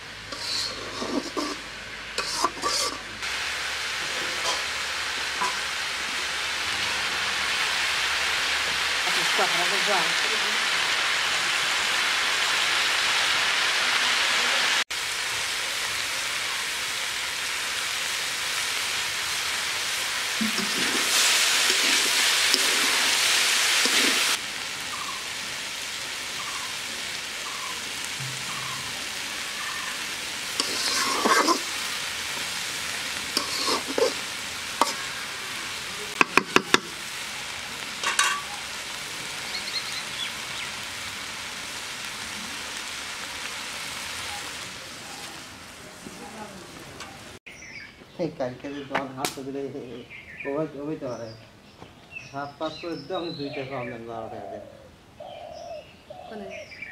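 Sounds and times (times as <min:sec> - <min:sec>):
vegetables sizzling in a wok: 0:00.0 - 0:47.7
utensil knocking against pan: 0:36.2 - 0:36.9.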